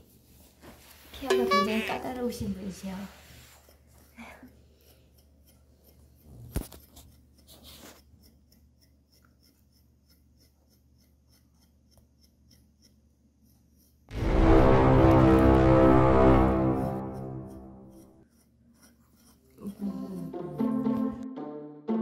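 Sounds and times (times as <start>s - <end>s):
metal rake combing fur: 0.8s - 14.2s, 17.4s - 20.3s
cheerful background music: 20.3s - 22.0s.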